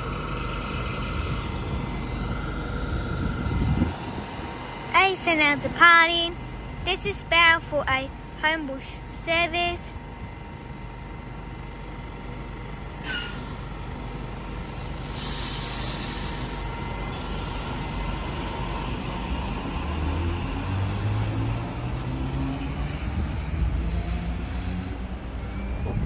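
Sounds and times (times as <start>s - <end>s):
low electric train hum: 0.0s - 26.0s
air hissing: 13.0s - 13.6s, 14.6s - 18.2s.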